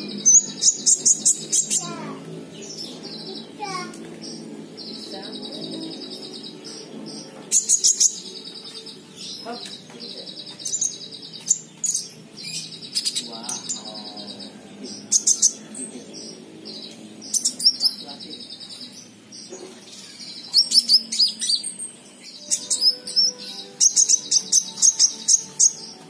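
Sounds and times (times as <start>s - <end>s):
sharp high bird chirps: 0.0s - 2.1s, 5.7s - 9.8s, 15.0s - 26.0s
buzzy trilled birdsong: 0.0s - 26.0s.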